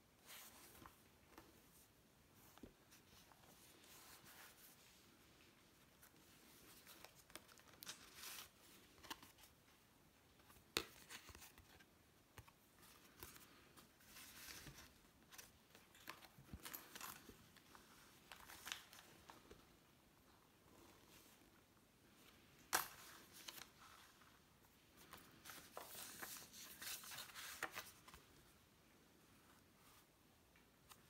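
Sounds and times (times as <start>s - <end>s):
paper rustling and crinkling: 6.0s - 9.6s, 10.4s - 19.6s, 22.7s - 28.4s.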